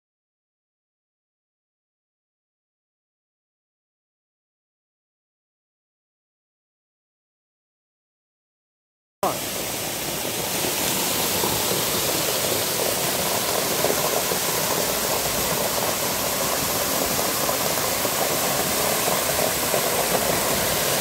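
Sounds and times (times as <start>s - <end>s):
waterfall pouring onto rocks: 9.2s - 21.0s.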